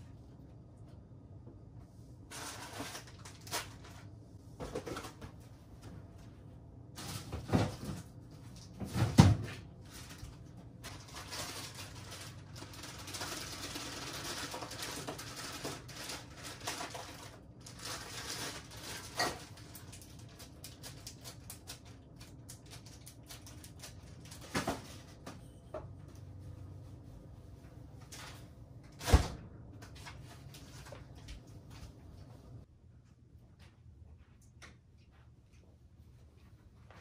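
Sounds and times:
plastic packaging crinkling: 2.3 - 4.1, 9.8 - 25.1.

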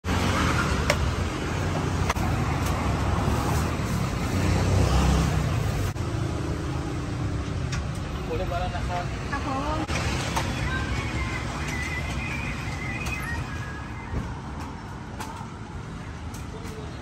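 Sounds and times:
road traffic rumble: 0.0 - 17.0.

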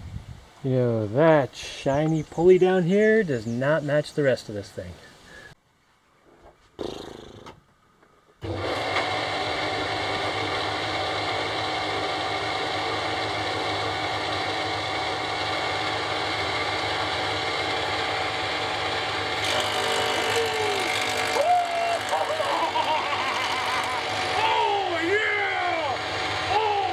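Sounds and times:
cutter head cutting wood hiss: 8.4 - 26.9
thickness planer motor running: 8.4 - 26.9.

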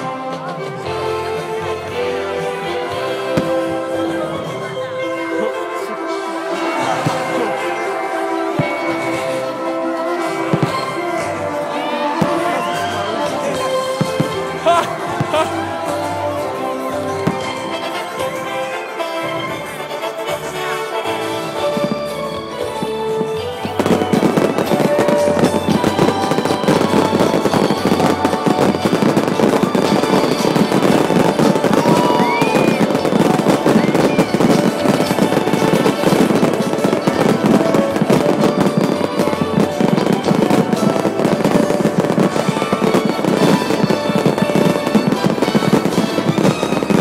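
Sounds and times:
fireworks banging and crackling: 0.0 - 47.0
music playing: 0.0 - 47.0.

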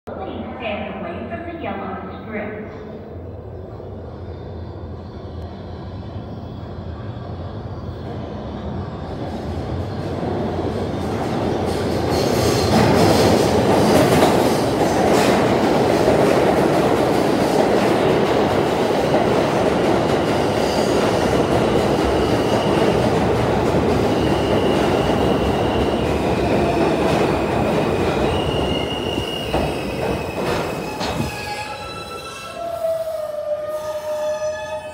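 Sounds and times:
subway train rumble: 0.1 - 34.9
train brake squeals: 28.3 - 34.9.

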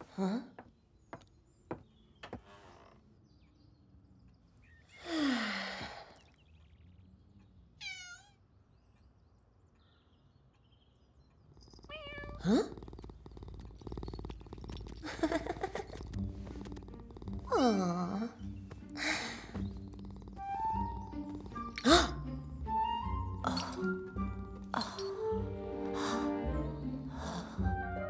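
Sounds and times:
cat purring: 11.4 - 22.8.

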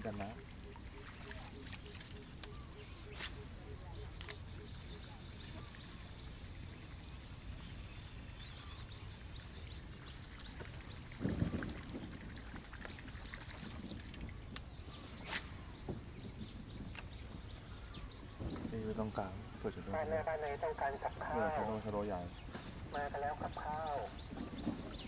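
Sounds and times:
water splashing and trickling: 0.0 - 2.9, 4.2 - 15.7.

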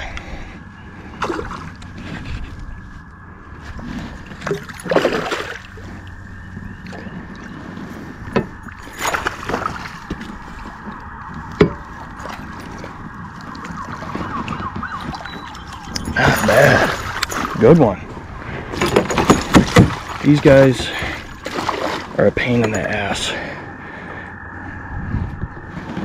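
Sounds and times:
fish splashing at water surface: 4.4 - 5.8, 8.7 - 10.7, 21.4 - 22.2.

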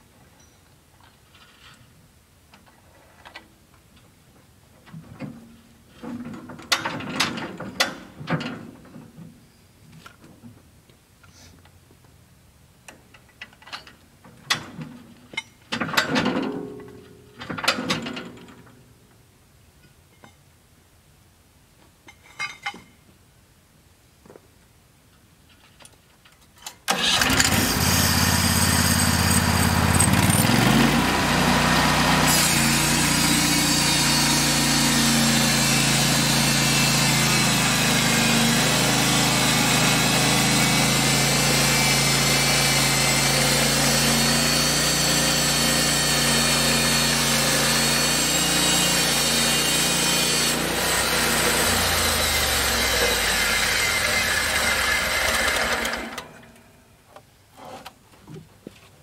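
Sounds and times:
sawmill gas engine running: 26.9 - 56.2
band blade cutting log: 27.5 - 56.0.

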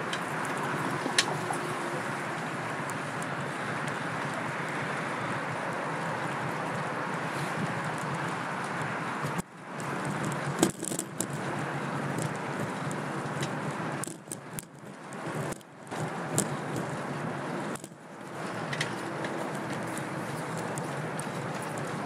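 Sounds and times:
bicycle rattles and clicks: 0.0 - 22.0
rushing wind and road noise: 0.0 - 22.0.

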